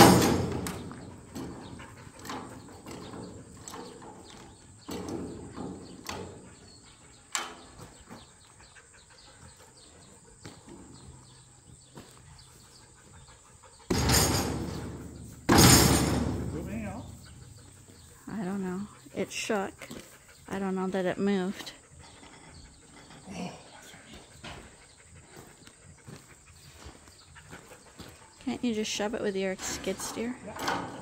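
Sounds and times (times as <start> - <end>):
heavy metal thuds and clanks: 0.0 - 6.5, 13.9 - 17.2.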